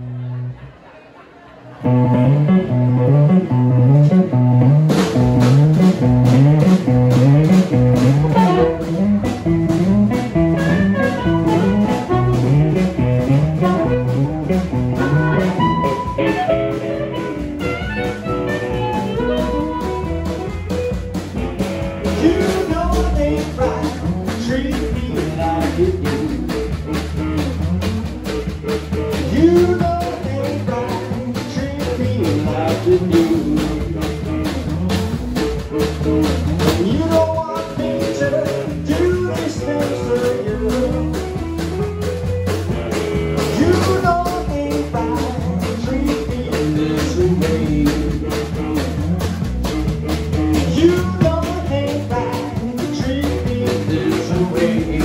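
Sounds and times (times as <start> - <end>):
electric bass: 0.0 - 0.7, 1.8 - 55.0
amplified blues harmonica: 1.8 - 26.6
drum kit: 1.8 - 55.0.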